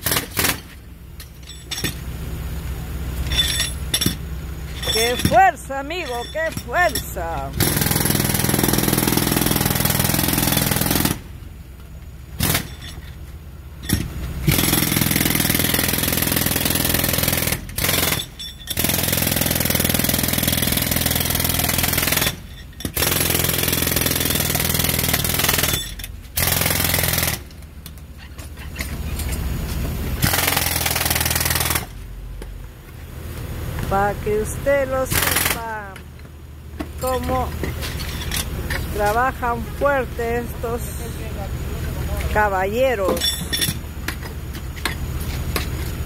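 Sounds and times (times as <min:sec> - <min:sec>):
jackhammer breaking pavement: 0:00.0 - 0:02.0, 0:03.3 - 0:11.3, 0:12.4 - 0:13.1, 0:13.8 - 0:27.7, 0:30.2 - 0:32.0, 0:34.9 - 0:35.9.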